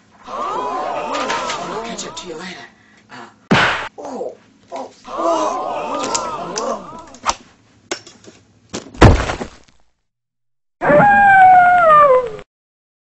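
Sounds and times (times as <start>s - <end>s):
sharp knock: 3.5s - 3.9s.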